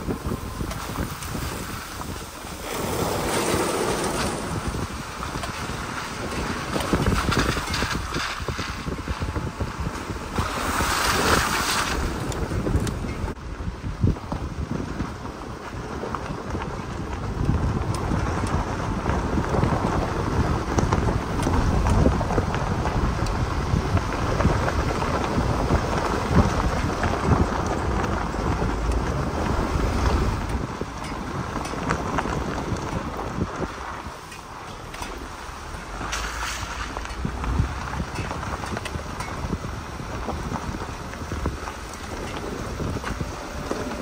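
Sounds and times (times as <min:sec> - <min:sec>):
tyres rolling over gravel: 0:00.0 - 0:44.0
wind buffeting microphone: 0:00.0 - 0:44.0.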